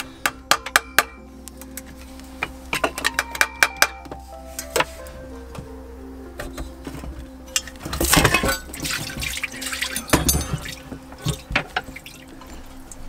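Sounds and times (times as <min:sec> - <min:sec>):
water spilling and dripping: 0:07.6 - 0:13.0.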